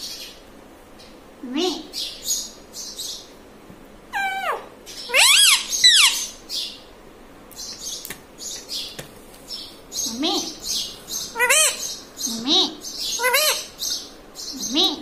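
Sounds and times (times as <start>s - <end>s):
parakeet calls: 4.1s - 6.9s, 7.6s - 15.0s.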